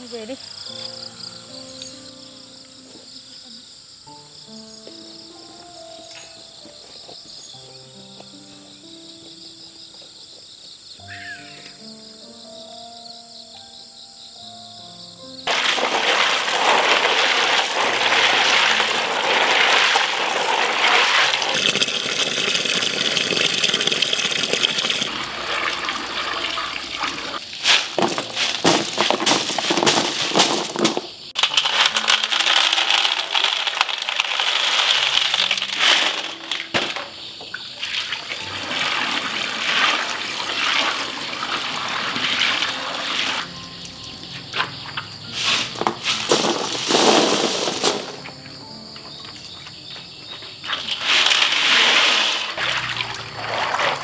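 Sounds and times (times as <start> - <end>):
water running and splashing: 15.5 - 37.0, 37.6 - 43.5, 50.7 - 54.0.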